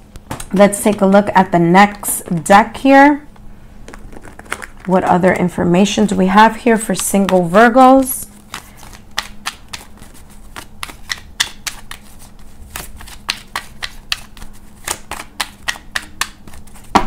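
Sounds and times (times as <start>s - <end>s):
cards being shuffled: 3.8s - 5.0s, 6.9s - 17.0s.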